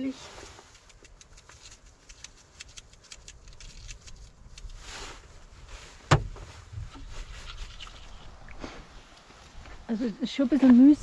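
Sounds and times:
soft rustle: 0:00.0 - 0:11.0
low thud: 0:06.0 - 0:07.1.

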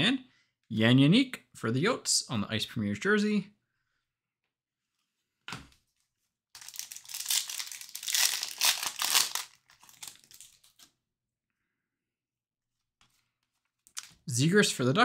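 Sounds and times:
foil wrapper tearing and crinkling: 0:06.6 - 0:10.9.

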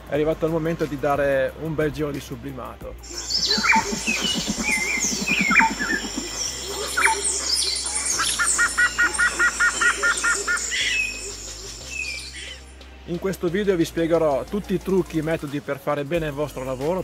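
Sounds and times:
quiet music: 0:00.0 - 0:17.0
bird trill: 0:03.0 - 0:12.7
birds chirping: 0:03.0 - 0:12.7.

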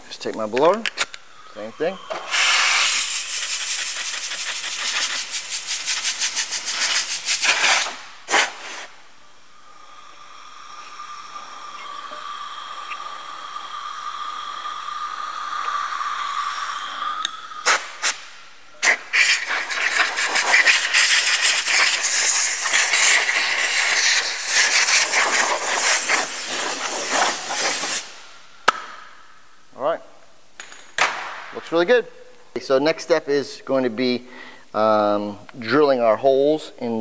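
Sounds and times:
air blow gun blasting: 0:02.1 - 0:08.9, 0:13.4 - 0:28.2.

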